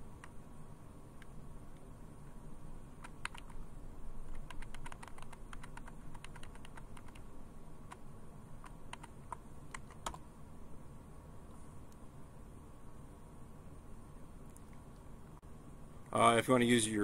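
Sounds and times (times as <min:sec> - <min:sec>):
keyboard keys clicking: 0:03.0 - 0:03.6, 0:04.3 - 0:07.2, 0:08.6 - 0:10.2.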